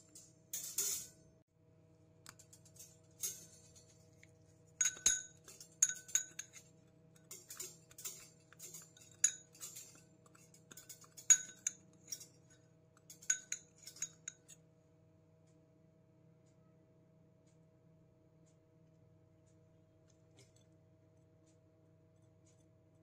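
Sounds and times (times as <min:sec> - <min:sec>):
metal utensil scraping ceramic bowl: 0:04.8 - 0:12.5, 0:13.1 - 0:14.6.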